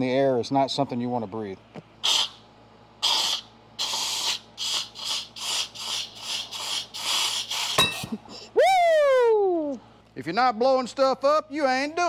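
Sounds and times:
compressed air blow gun hissing: 3.0s - 8.0s.

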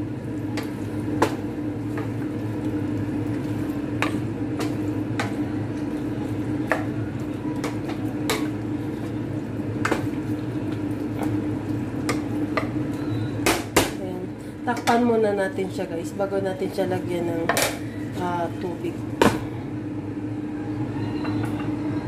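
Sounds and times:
meat frying in a pan: 0.0s - 14.0s.

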